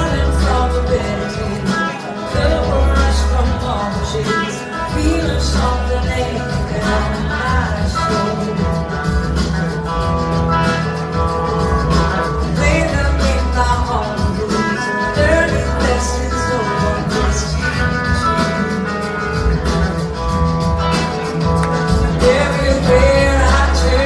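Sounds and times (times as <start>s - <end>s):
woman singing: 0.0s - 9.0s, 12.6s - 18.5s, 22.2s - 24.0s
blues-rock band playing live: 0.0s - 24.0s.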